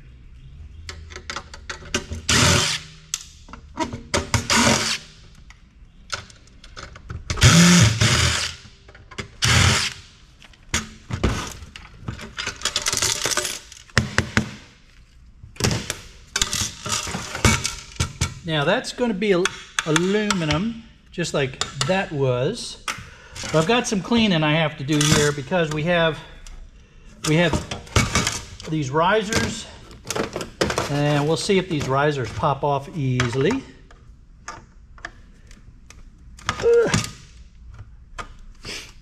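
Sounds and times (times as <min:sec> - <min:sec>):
screws and metal parts clinking: 0:12.1 - 0:14.0.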